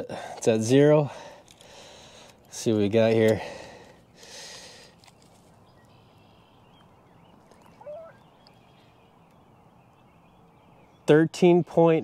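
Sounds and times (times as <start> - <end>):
short wavering call: 7.7 - 8.3.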